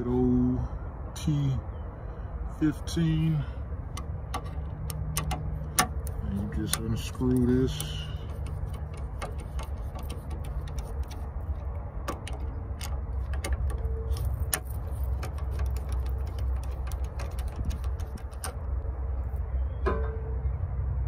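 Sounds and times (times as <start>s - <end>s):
steady low rumble: 0.0s - 21.0s
screwdriver clicking on screws: 4.0s - 18.6s.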